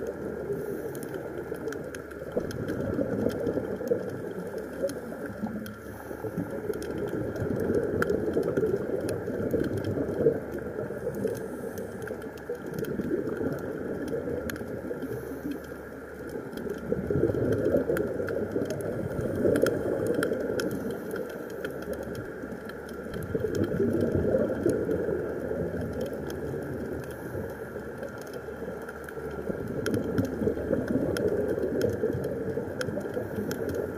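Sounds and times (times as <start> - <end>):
exhaled bubbles underwater: 0.0 - 33.9
faint clicks: 0.0 - 33.9.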